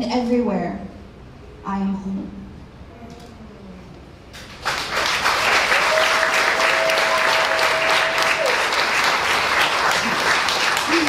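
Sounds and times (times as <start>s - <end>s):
audience applause: 4.4s - 11.0s.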